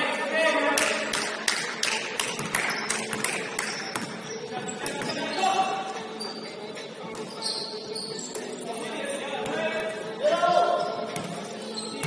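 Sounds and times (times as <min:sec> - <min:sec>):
players' voices: 0:00.0 - 0:12.0
shoe squeaks: 0:02.7 - 0:09.8, 0:10.4 - 0:12.0.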